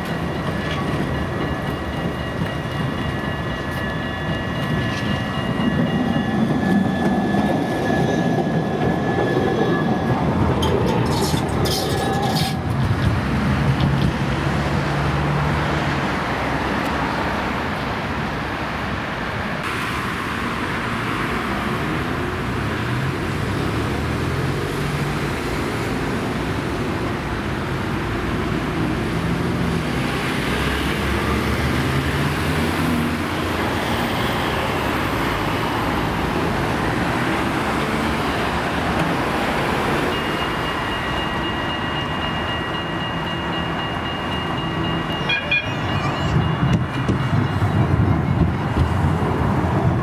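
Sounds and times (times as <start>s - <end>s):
tram clicks: 0.0s - 18.4s, 34.5s - 50.0s
road traffic noise: 0.0s - 50.0s
tram approaching: 0.0s - 50.0s
tram drive whine: 0.0s - 50.0s.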